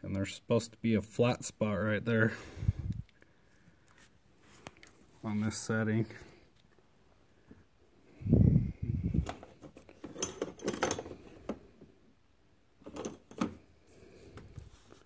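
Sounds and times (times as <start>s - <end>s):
metal tools clinking and rattling: 9.2s - 11.3s, 12.8s - 13.5s.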